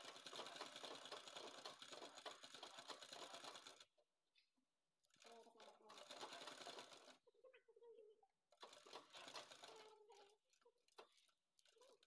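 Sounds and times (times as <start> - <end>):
sewing machine stitching: 0.0 - 3.9, 5.1 - 7.2, 8.5 - 10.3.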